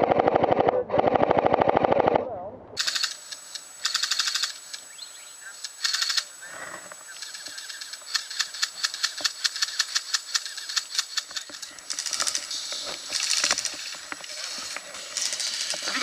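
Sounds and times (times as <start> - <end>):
airsoft rifles firing: 2.8 - 4.6.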